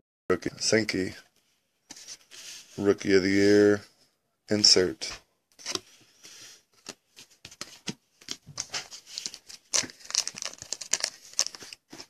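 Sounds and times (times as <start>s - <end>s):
foil wrapper tearing and crinkling: 9.0s - 11.8s.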